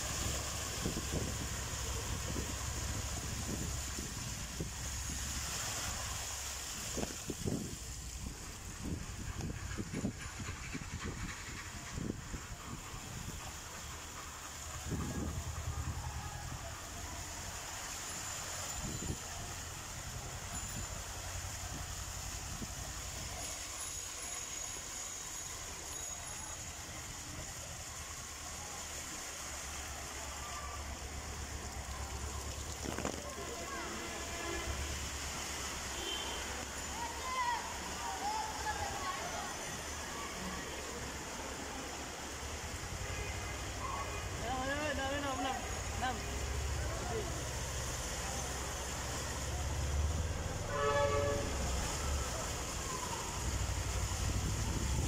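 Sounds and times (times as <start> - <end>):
rain and floodwater rushing: 0.0 - 55.0
vehicle horn honk: 36.0 - 36.4, 50.7 - 51.6.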